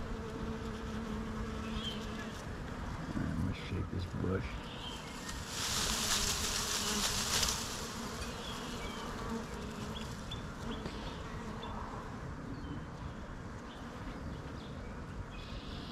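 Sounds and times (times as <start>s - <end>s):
bees buzzing: 0.0s - 12.3s.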